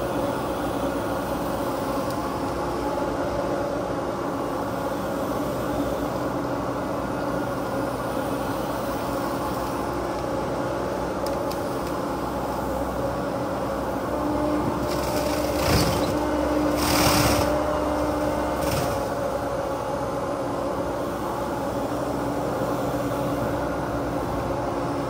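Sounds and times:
excavator diesel engine and hydraulics: 0.0s - 25.0s.

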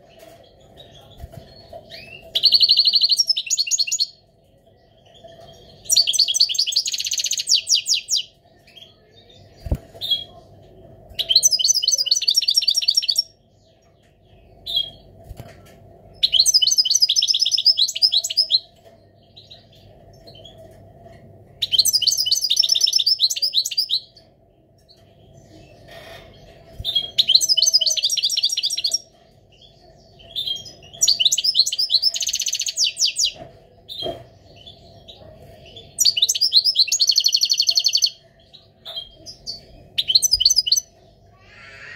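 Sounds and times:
goldfinch twittering song: 25.9s - 33.4s, 38.9s - 40.9s.

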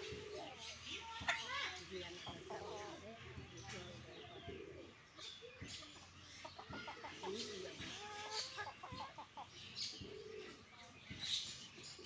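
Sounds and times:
hens clucking: 0.0s - 11.3s
small birds chirping: 0.0s - 12.0s.

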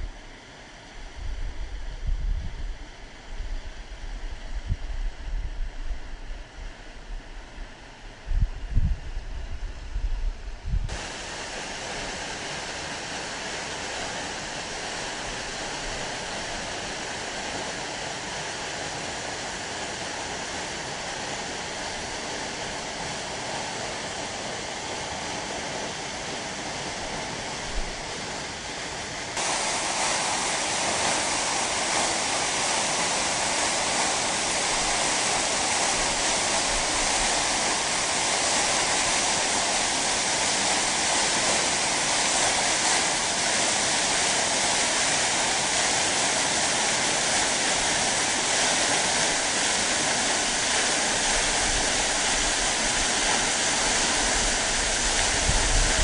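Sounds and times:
waterfall rushing: 10.9s - 28.4s, 29.1s - 56.0s.

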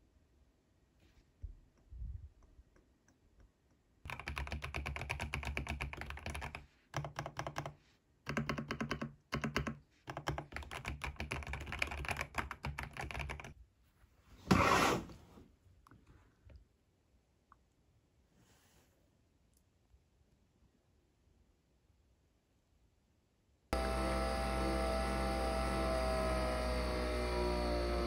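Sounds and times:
mechanical keyboard typing: 4.1s - 13.6s.

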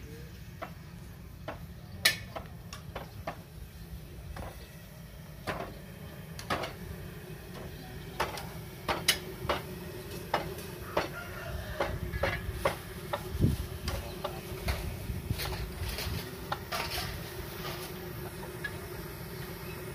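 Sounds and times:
spatulas scraping steel woks: 13.9s - 18.0s.

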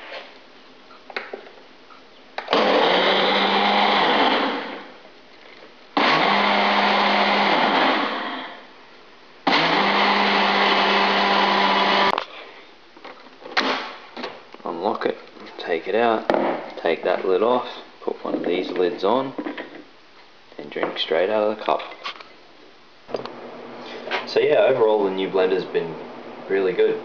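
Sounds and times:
blender motor blending: 2.4s - 4.9s, 6.0s - 8.6s, 9.4s - 12.2s.

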